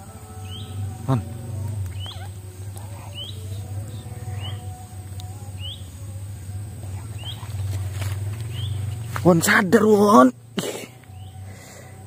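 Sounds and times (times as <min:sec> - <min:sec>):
steady low hum: 0:00.0 - 0:12.0
bird rising chirp: 0:00.3 - 0:04.8, 0:05.4 - 0:06.1, 0:06.8 - 0:09.2.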